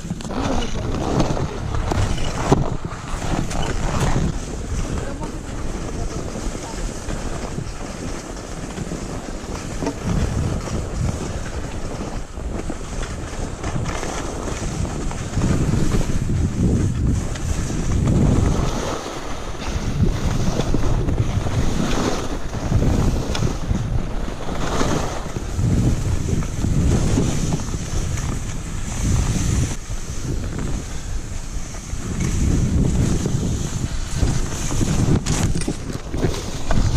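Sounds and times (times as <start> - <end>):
wind buffeting microphone: 0.0 - 36.9
skis hissing on snow: 17.1 - 35.2.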